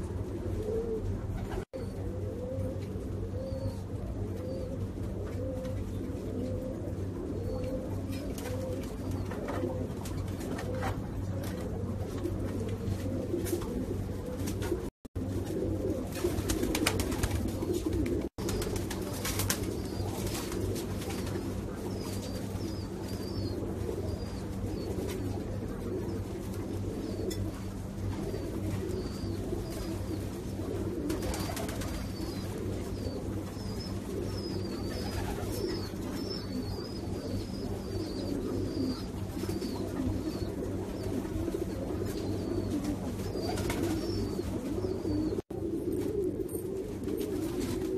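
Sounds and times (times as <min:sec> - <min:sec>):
pigeons cooing: 0:00.0 - 0:47.9.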